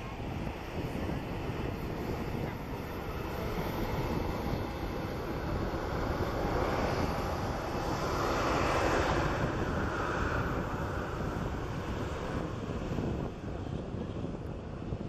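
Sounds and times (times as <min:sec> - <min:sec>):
jet engines roaring at takeoff: 0:00.0 - 0:15.0.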